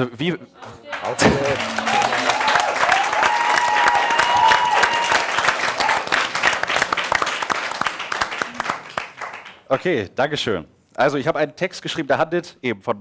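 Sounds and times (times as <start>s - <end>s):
audience applauding: 0.8s - 9.6s.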